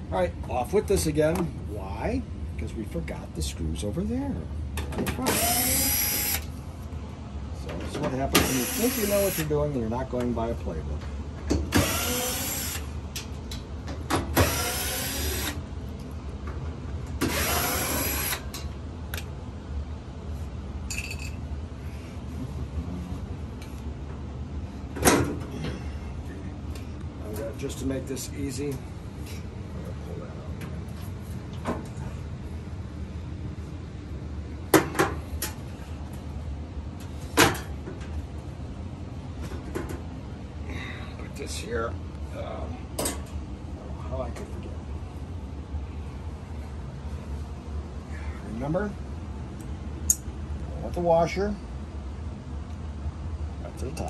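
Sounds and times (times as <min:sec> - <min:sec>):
cordless drill whining: 0:05.3 - 0:06.4, 0:08.4 - 0:09.4, 0:11.8 - 0:12.8, 0:14.4 - 0:15.6, 0:17.2 - 0:18.4.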